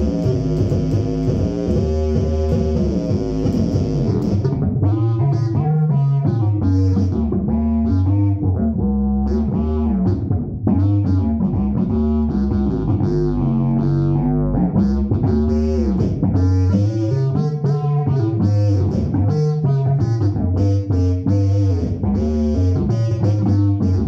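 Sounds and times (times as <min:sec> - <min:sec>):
sustained low bass note: 0:00.0 - 0:17.0
fretless bass sliding melody: 0:00.0 - 0:24.0.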